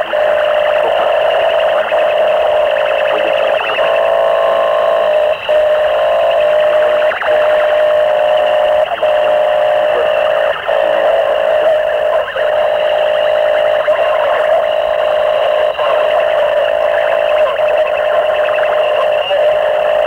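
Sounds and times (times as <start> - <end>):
distorted electronic drone: 0.0 - 20.0.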